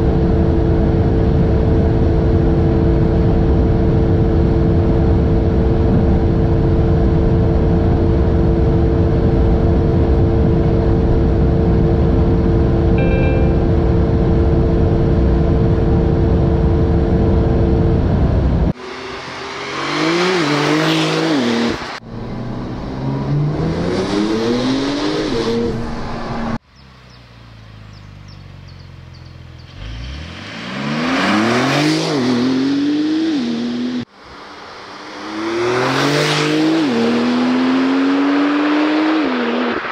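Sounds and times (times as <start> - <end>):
car interior roar at high speed: 0.0 - 39.9
car accelerating past: 29.6 - 34.0, 34.9 - 39.9.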